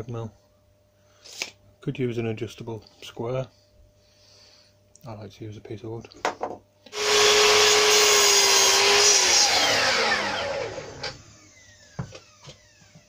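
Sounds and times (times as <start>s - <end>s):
power tool motor spinning down: 6.9s - 13.0s.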